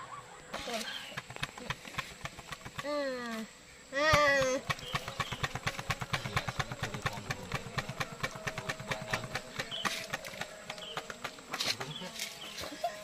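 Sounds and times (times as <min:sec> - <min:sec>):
motorcycle engine idling: 0:04.2 - 0:13.0.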